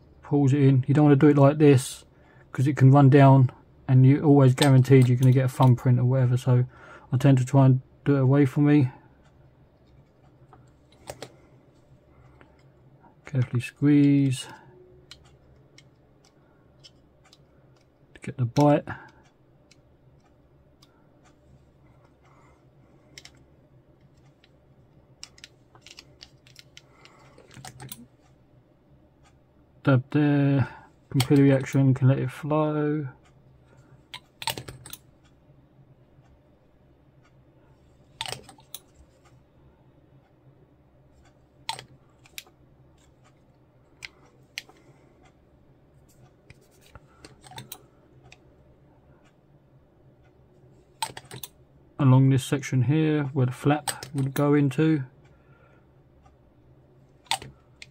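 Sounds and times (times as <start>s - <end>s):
low steady hum: 0.0s - 57.9s
small clicks of plastic parts: 4.5s - 5.9s, 9.2s - 11.5s, 13.3s - 28.4s, 33.2s - 35.4s, 38.0s - 39.4s, 41.2s - 45.4s, 46.0s - 48.5s, 50.2s - 51.6s, 53.7s - 55.4s, 57.2s - 57.9s
plastic parts clicking: 23.0s - 23.4s, 25.2s - 28.1s, 34.1s - 35.0s, 38.2s - 39.0s, 46.5s - 48.4s, 51.0s - 51.6s, 53.8s - 54.4s, 57.2s - 57.9s.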